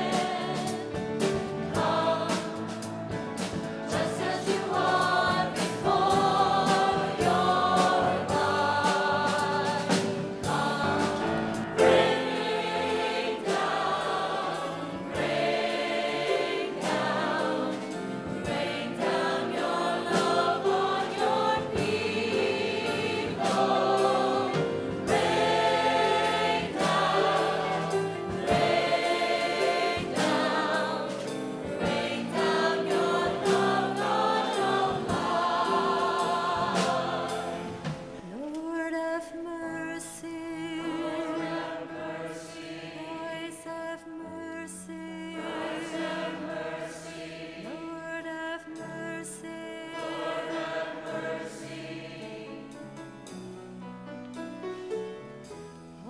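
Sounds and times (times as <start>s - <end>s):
choir singing a hymn: 0.0s - 54.6s.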